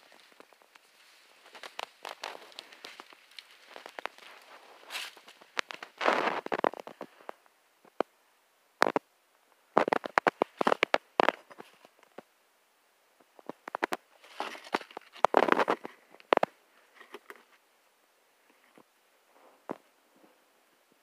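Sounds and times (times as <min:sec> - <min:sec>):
footsteps on gravel: 0:00.0 - 0:07.0.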